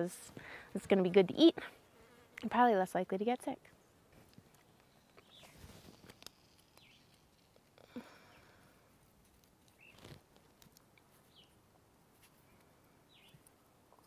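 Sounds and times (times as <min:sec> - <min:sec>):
soft handling noises: 0:08.9 - 0:12.7.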